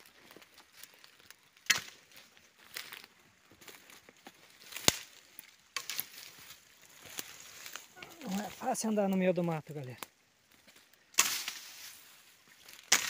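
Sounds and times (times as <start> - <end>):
footsteps through undergrowth: 0.0 - 13.0
sharp twig cracks: 1.6 - 2.0, 4.7 - 6.3, 11.1 - 12.0, 12.7 - 13.0.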